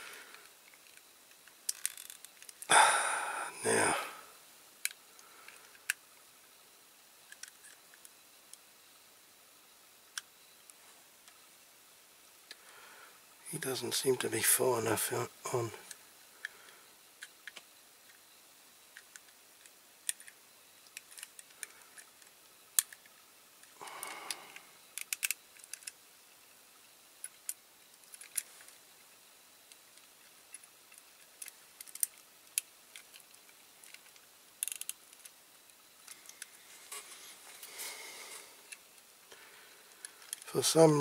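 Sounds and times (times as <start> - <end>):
toy car parts clicking: 0.7 - 2.7, 7.3 - 8.1, 19.0 - 23.1, 24.9 - 26.0, 27.2 - 28.5, 29.7 - 35.4, 40.0 - 40.5.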